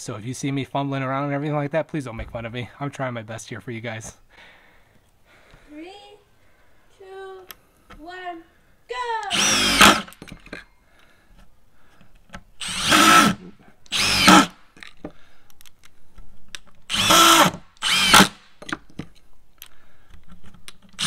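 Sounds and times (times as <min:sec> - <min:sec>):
impact driver whining: 0:09.2 - 0:10.5, 0:12.6 - 0:14.6, 0:16.9 - 0:18.7.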